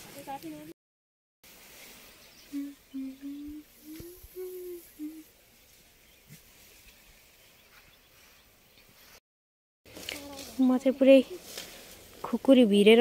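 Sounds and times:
person humming a tune: 0:02.5 - 0:05.3.

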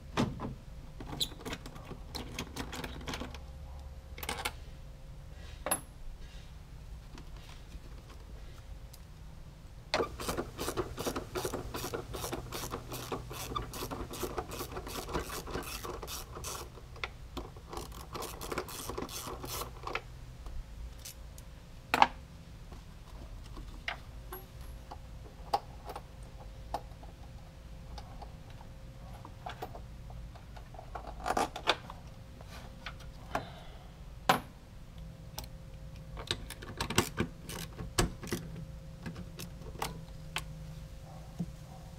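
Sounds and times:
ratchet wrench clicking: 0:10.0 - 0:16.7, 0:17.8 - 0:19.8.

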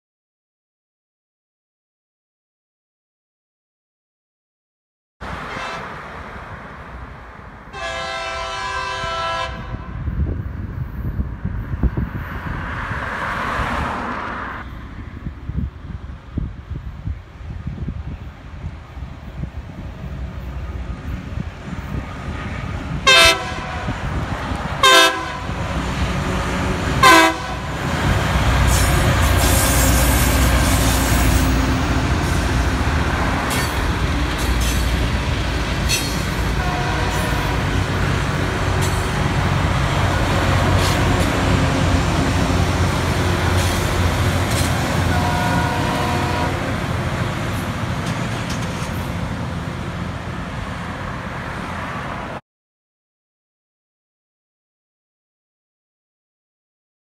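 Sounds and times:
train rumbling past: 0:05.2 - 0:52.4
train horn blasts: 0:05.4 - 0:06.0, 0:07.7 - 0:10.1, 0:23.0 - 0:24.2, 0:24.8 - 0:25.8, 0:27.0 - 0:27.8, 0:36.4 - 0:37.9, 0:44.7 - 0:46.9.

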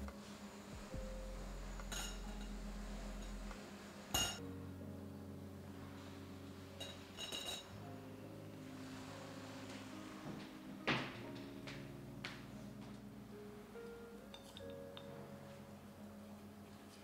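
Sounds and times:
glass clinking against metal: 0:01.9 - 0:02.5, 0:04.2 - 0:04.4, 0:06.8 - 0:07.7, 0:14.3 - 0:15.1.

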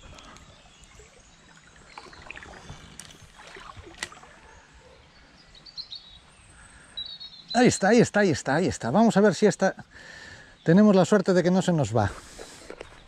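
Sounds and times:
stream water trickling: 0:00.0 - 0:04.7.

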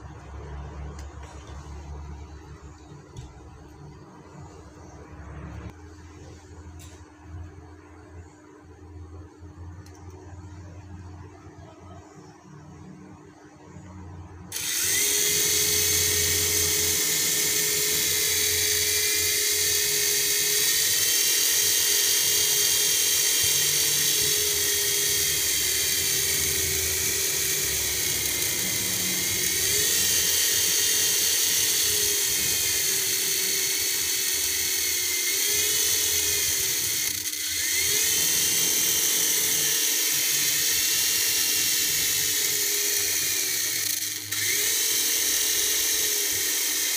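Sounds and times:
toy helicopter motor whirring: 0:14.5 - 0:46.9.

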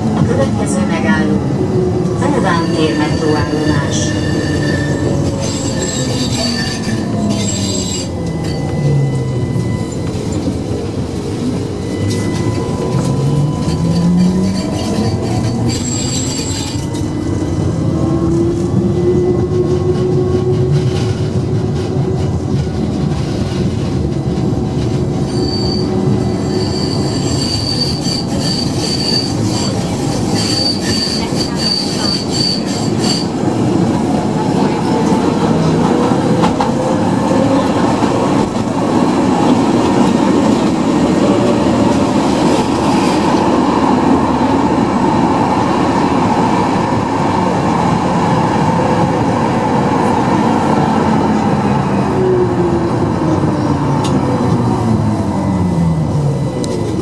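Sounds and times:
tram rolling rumble: 0:00.0 - 0:57.0
high wheel squeal: 0:02.4 - 0:10.7, 0:11.6 - 0:17.4, 0:25.2 - 0:34.0.

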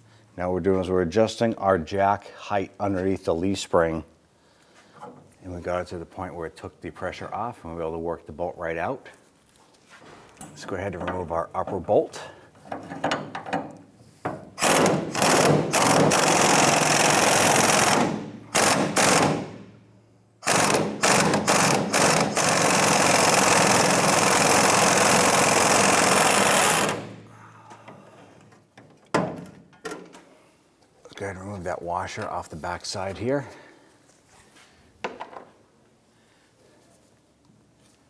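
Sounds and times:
impact wrench hammering: 0:12.9 - 0:19.8, 0:20.4 - 0:27.3.

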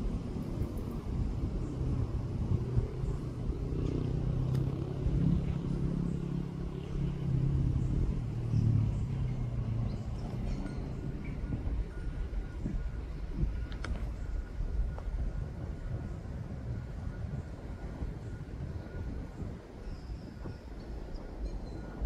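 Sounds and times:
vehicle engine running: 0:00.0 - 0:19.8.

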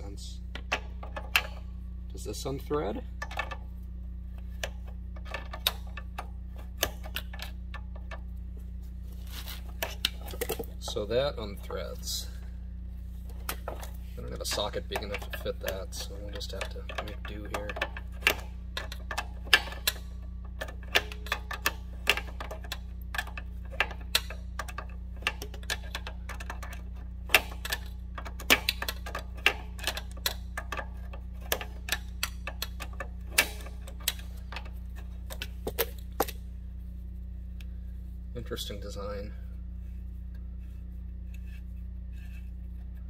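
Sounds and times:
low hum: 0:00.0 - 0:43.0.

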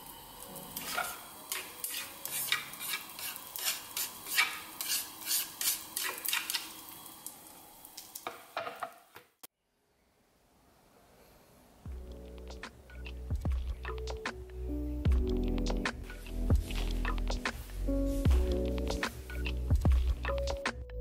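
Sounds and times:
wooden spatula scraping frying pan: 0:00.8 - 0:06.6.

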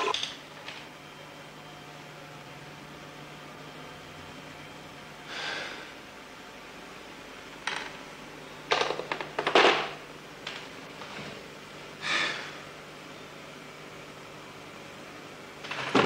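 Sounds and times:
man exhaling heavily: 0:05.3 - 0:06.0, 0:12.0 - 0:12.6.

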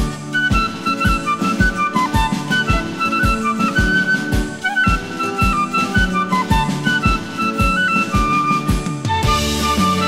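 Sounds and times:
steady drum beat: 0:00.0 - 0:10.0.

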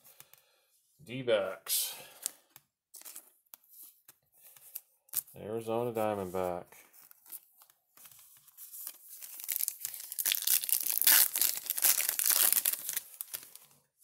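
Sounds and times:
card pack wrapper tearing and crinkling: 0:03.0 - 0:03.3, 0:08.7 - 0:13.8.

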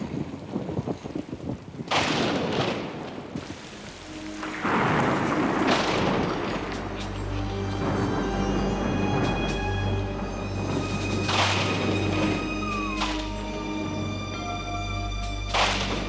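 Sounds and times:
heavy rain: 0:00.0 - 0:16.0
thunder: 0:01.9 - 0:03.6, 0:04.4 - 0:09.5
music: 0:03.7 - 0:16.0.

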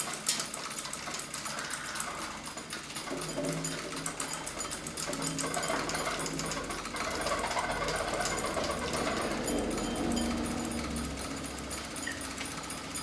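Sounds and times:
objects rattling and buzzing: 0:00.0 - 0:13.0
low held tones: 0:05.1 - 0:12.9.

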